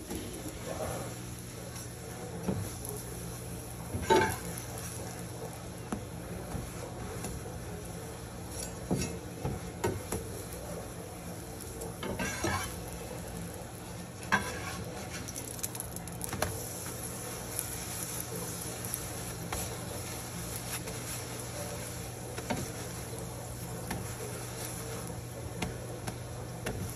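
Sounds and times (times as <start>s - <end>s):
oil sizzling: 0.0s - 26.9s
metal spatula scraping a pan: 12.0s - 12.9s, 14.2s - 15.4s.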